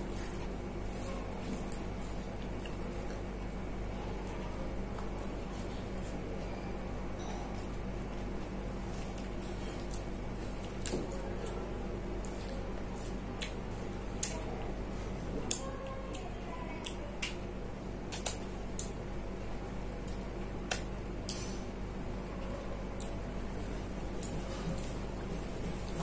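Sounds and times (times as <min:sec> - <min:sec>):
wet eating smacks and squelches: 0:18.1 - 0:19.0.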